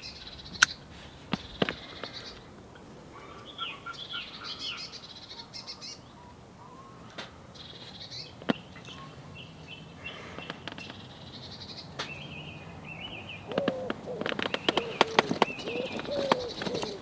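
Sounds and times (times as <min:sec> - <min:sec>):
kindling crackling: 0:00.0 - 0:12.2, 0:13.1 - 0:17.0
songbirds chirping: 0:00.0 - 0:17.0
pigeon cooing: 0:01.8 - 0:07.5, 0:13.4 - 0:17.0.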